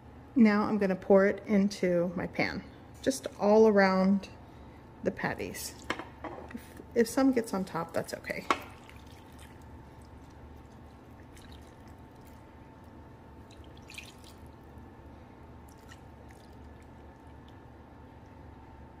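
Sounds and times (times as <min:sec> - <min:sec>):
low steady hum: 0:00.0 - 0:19.0
liquid trickling and dripping: 0:08.5 - 0:14.8, 0:15.6 - 0:18.4.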